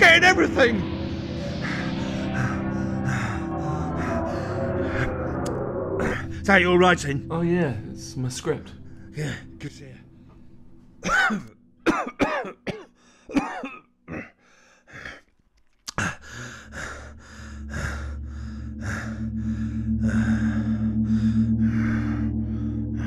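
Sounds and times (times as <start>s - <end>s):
man coughing and choking: 11.0s - 14.4s
man breathing hard: 12.9s - 13.3s, 14.4s - 15.3s, 15.9s - 23.0s.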